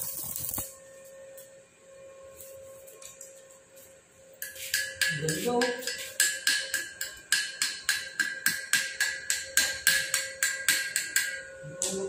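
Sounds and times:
chipping hammer tapping steel: 4.4 - 12.0.

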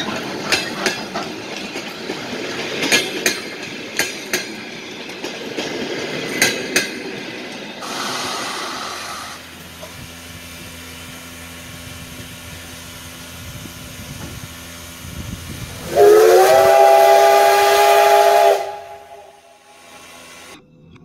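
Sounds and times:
steam hissing: 5.8 - 20.6
steam whistle chord: 15.8 - 20.6.

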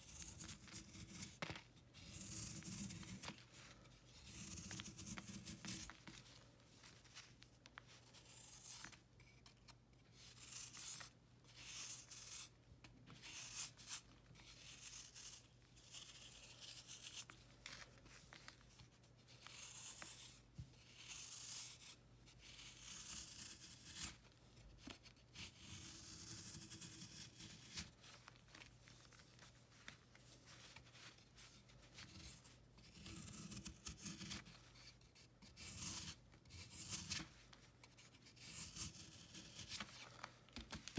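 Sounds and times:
knife blade scraping chalky block: 2.0 - 3.2, 8.1 - 12.5, 13.2 - 17.3, 19.4 - 24.2, 25.4 - 27.9, 32.0 - 37.2, 37.9 - 39.8.

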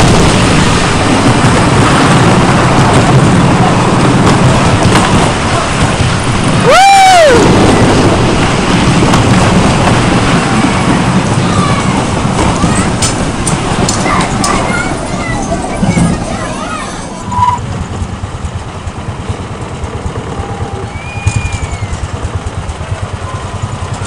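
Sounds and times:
wind noise on microphone: 0.0 - 16.4
roller coaster train rumbling: 0.0 - 24.0
rider yelling: 6.6 - 8.1, 11.3 - 13.0, 20.2 - 23.8.

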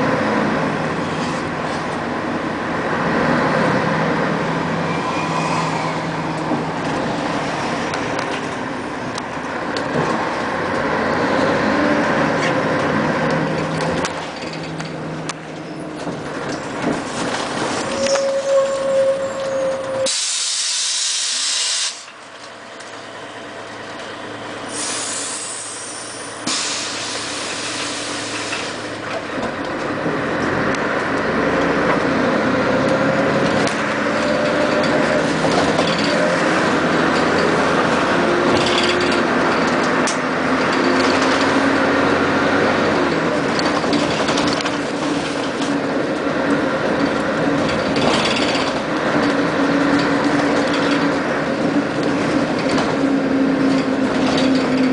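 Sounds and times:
rear axle whine: 0.0 - 20.5, 22.1 - 54.9
bus engine accelerating: 0.0 - 54.9
compressed air hissing: 20.1 - 22.1, 24.7 - 28.8.

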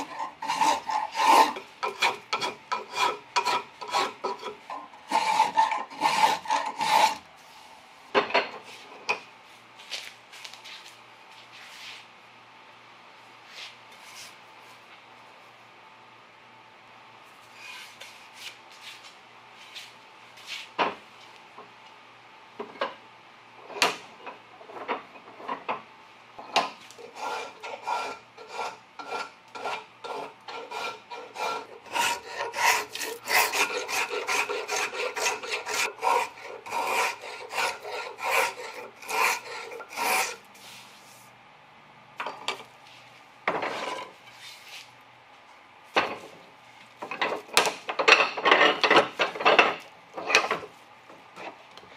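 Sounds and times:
hand tool shaving wood: 0.0 - 7.2, 27.1 - 40.4.

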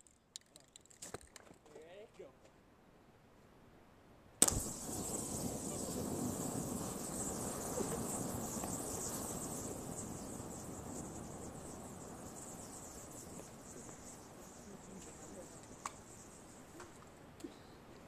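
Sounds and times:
flame rushing: 4.4 - 17.1
crickets chirring: 4.4 - 17.9.

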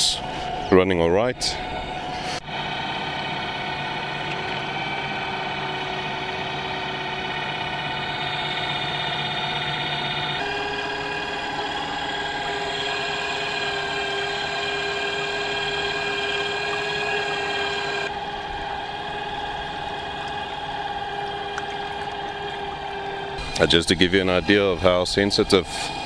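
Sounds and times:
electric motor whine: 1.4 - 26.0
water washing: 18.6 - 23.8.

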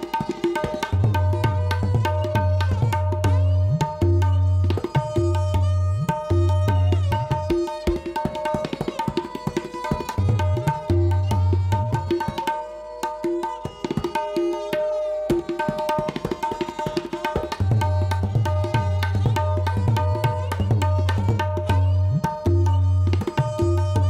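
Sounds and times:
tabla treble strokes: 0.0 - 24.0
tabla deep bass strokes: 17.6 - 24.0.

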